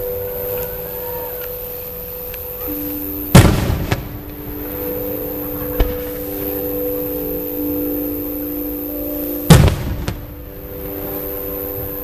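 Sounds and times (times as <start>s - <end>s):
background music with held notes: 0.0s - 12.0s
firework crack: 0.0s - 12.0s
firework boom: 3.3s - 4.3s, 9.5s - 10.3s.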